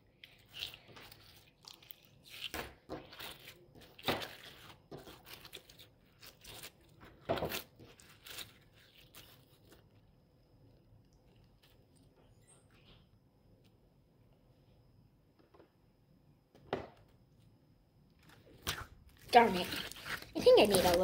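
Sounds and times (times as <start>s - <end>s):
hands squishing slime: 0.0s - 10.1s, 18.3s - 21.0s.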